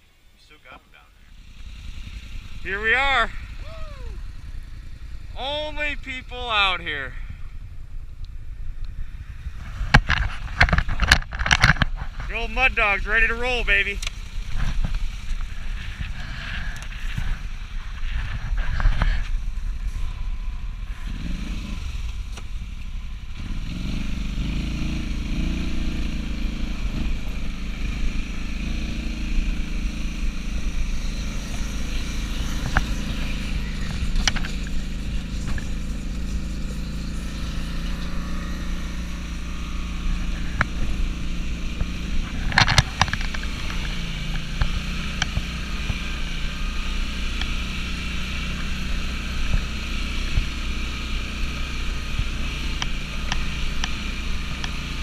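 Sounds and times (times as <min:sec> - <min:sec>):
snowmobile engine revving: 0:00.4 - 0:07.3, 0:11.8 - 0:55.0.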